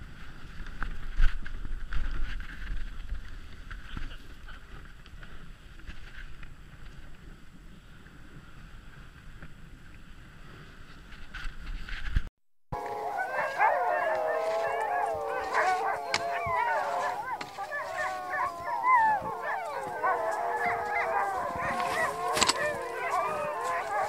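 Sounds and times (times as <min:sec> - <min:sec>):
dog sled running over snow: 0:00.0 - 0:12.2, 0:12.8 - 0:24.0
sled dogs howling: 0:12.8 - 0:24.0.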